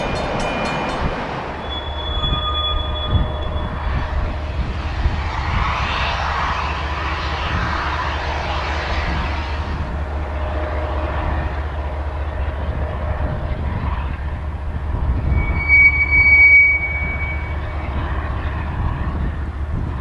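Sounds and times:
steel wheel squealing on rail: 0:00.0 - 0:04.4, 0:14.8 - 0:19.0
freight train rumbling past: 0:00.0 - 0:20.0.

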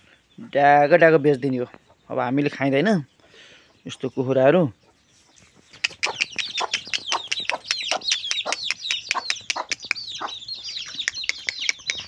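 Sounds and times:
chicks peeping: 0:00.1 - 0:12.0
hen clucking: 0:04.8 - 0:12.0.

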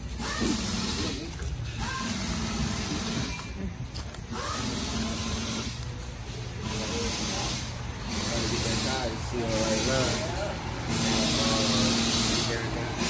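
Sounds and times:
compressed air hissing: 0:04.3 - 0:13.0.

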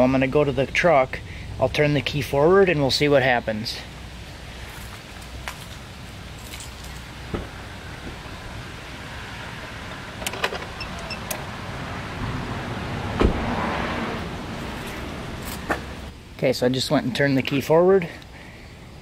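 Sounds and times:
truck door shutting: 0:10.1 - 0:11.5, 0:13.1 - 0:14.2.

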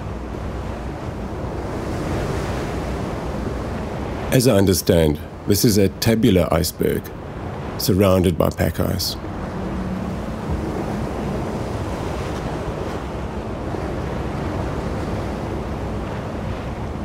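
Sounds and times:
rushing wind and sea water: 0:00.0 - 0:17.0
wind buffeting microphone: 0:09.2 - 0:17.0.

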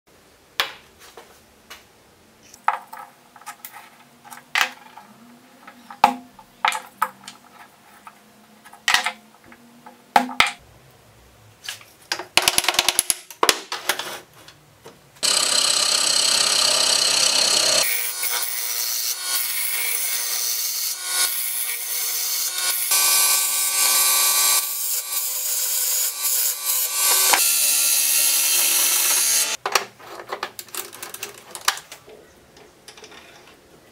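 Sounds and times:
lathe motor hum: 0:15.2 - 0:18.5
gouge cutting spinning wood: 0:15.2 - 0:29.6
small parts and wood clicking: 0:29.1 - 0:33.7.

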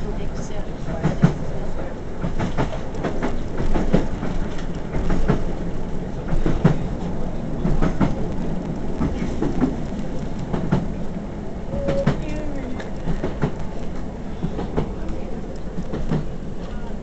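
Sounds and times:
train wheels rumbling on rails: 0:00.0 - 0:17.0
sharp clicks and knocks from track: 0:00.8 - 0:01.4, 0:02.2 - 0:05.6, 0:07.6 - 0:10.9, 0:11.8 - 0:16.7.

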